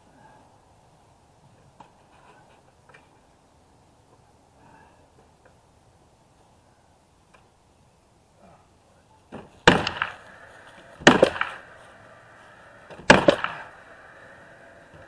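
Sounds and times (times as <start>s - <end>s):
faint high whine: 0.0s - 15.0s
nail gun firing: 9.3s - 12.1s, 12.8s - 15.0s.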